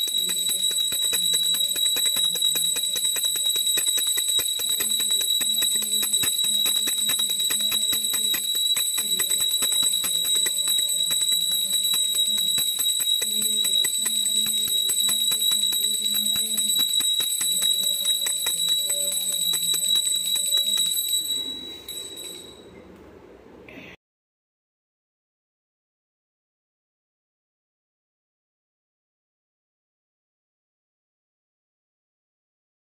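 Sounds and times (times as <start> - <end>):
small bell rung rapidly: 0.0 - 22.8.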